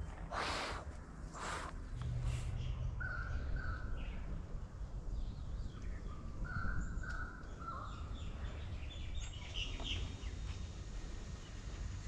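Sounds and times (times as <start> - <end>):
low steady rumble: 0.0 - 7.0.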